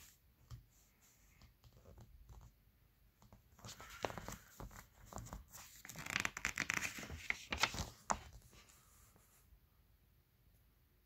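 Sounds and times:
paper pages rustling: 3.5 - 9.0.

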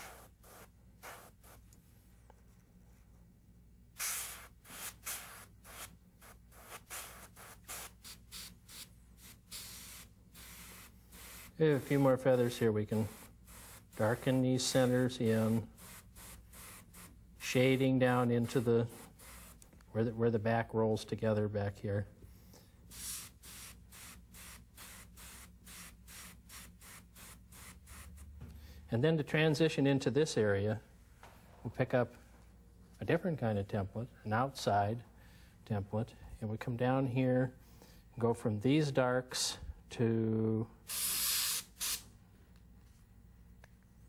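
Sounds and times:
airbrush spraying bursts: 0.0 - 1.6, 4.0 - 19.7, 22.9 - 28.4, 40.9 - 42.1.

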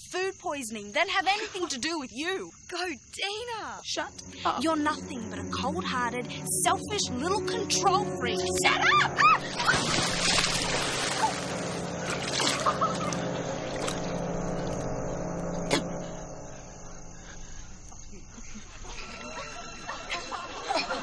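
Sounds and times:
water sloshing and splashing: 9.4 - 14.8
person falling into water: 9.5 - 14.0.

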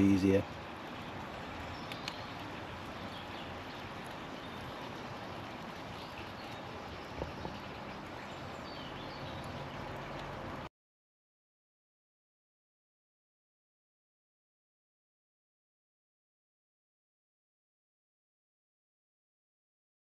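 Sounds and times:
outdoor background hiss: 0.0 - 10.7
soft clicks: 1.8 - 2.2.

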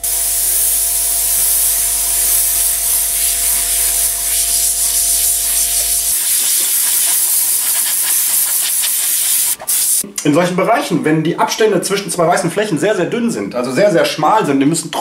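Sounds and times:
airbrush air hiss: 0.0 - 10.0.

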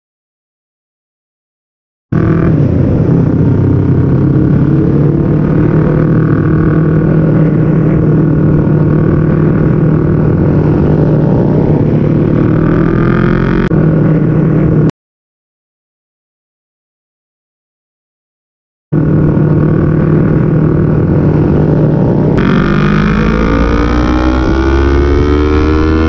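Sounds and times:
motorcycle engine running: 2.1 - 14.9, 19.0 - 26.0.

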